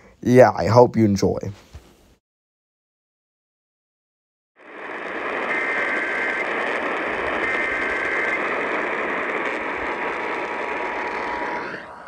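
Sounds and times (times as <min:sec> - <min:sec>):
radio static hiss: 0:04.6 - 0:12.0
warbling data bursts: 0:04.7 - 0:12.0.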